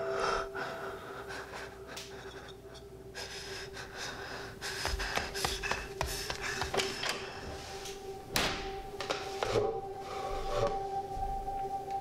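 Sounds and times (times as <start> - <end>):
quiet breathing: 0.0 - 8.2, 9.2 - 11.2
footsteps: 4.6 - 8.0.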